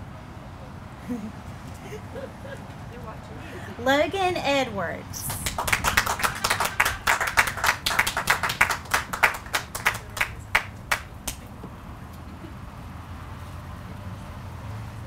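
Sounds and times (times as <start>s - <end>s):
people clapping: 5.2s - 11.5s.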